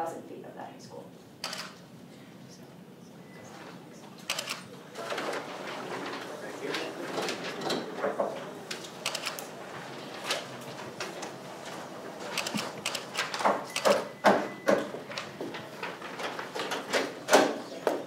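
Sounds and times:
murmured voices: 2.4 - 11.3.

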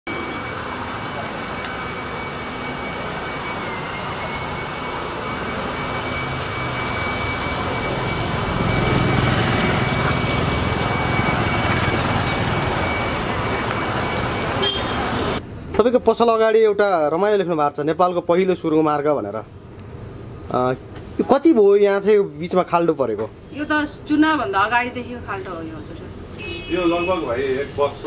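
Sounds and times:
motorbikes passing on wet road: 0.2 - 15.4.

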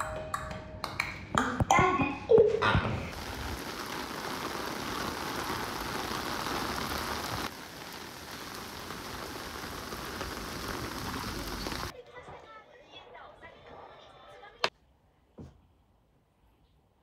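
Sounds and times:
rain hissing: 2.9 - 11.9.

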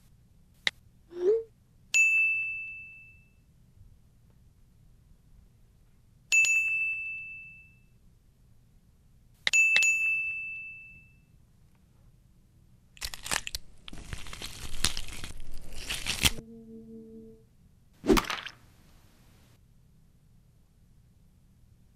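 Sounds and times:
rubbery layer peeling off: 13.0 - 16.4.

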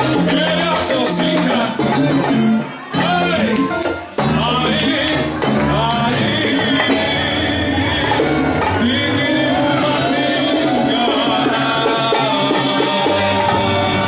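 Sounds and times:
congas: 0.0 - 14.0
electric bass: 0.0 - 14.0
man singing into a microphone: 0.0 - 14.0.

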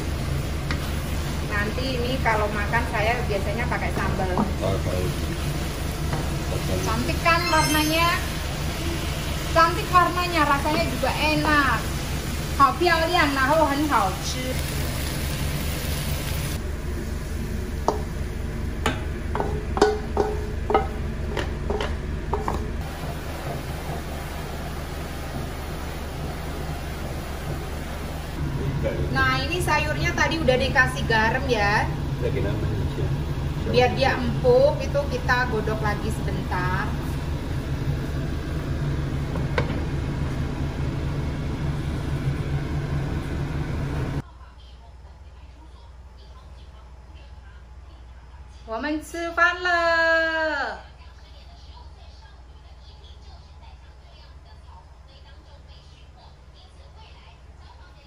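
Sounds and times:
soup boiling in pot: 0.0 - 3.7, 4.3 - 29.3
noodles sizzling in wok: 0.0 - 21.1, 22.4 - 28.4
steady low hum: 0.0 - 49.2
spatula knocking against wok: 17.8 - 18.2, 18.8 - 22.8.

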